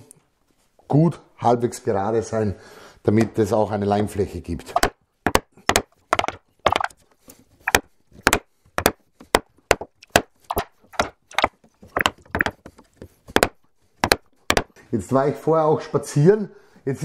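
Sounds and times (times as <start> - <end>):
mallet striking chisel: 4.8 - 7.0, 7.6 - 12.6, 13.3 - 14.7.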